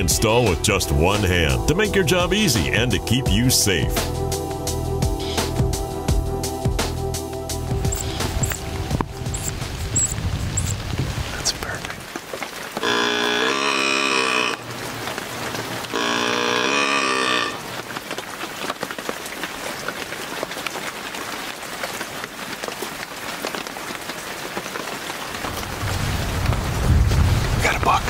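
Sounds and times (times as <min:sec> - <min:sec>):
rain pattering on branches: 0:07.7 - 0:28.0
deer bleat call: 0:12.8 - 0:14.7, 0:15.9 - 0:17.7.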